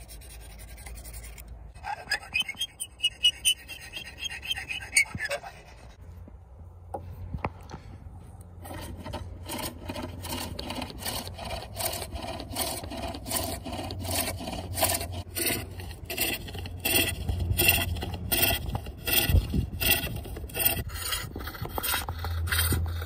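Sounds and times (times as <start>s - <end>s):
hook tool scraping spinning wood: 0.0s - 6.0s, 8.5s - 23.0s.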